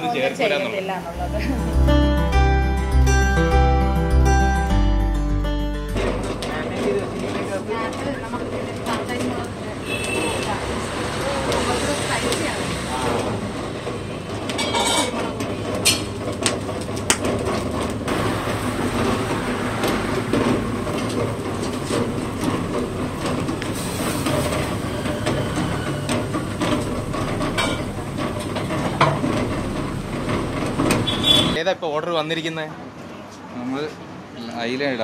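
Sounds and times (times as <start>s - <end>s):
low kitchen rumble: 5.8s - 31.6s
utensils and trays clinking: 5.9s - 31.6s.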